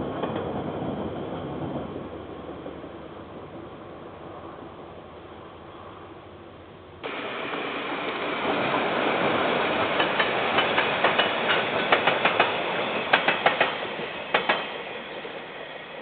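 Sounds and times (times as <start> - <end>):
freight train rumbling past: 0.0 - 16.0
wheels clacking over rail joints: 7.0 - 14.8.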